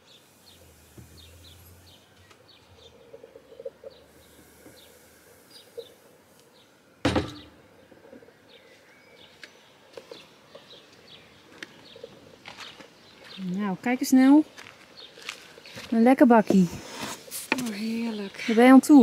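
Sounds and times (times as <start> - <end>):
small birds chirping: 0.0 - 19.0
metal jug clunk on counter: 7.1 - 7.5.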